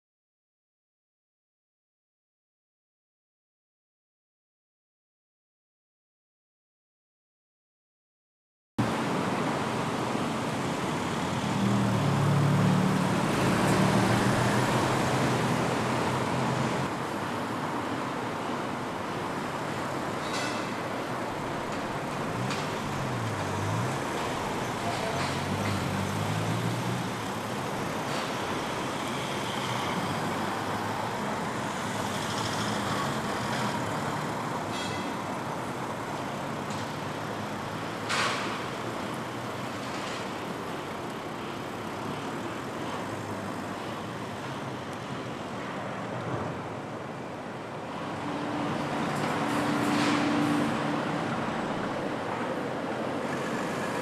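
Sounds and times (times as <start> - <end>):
vehicle engines passing: 8.8 - 54.0.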